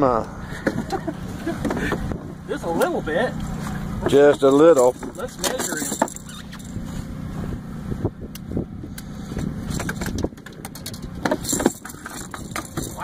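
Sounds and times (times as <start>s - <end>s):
steady low rumble: 0.0s - 13.0s
fishing gear knocking and rattling: 4.0s - 6.8s, 9.4s - 13.0s.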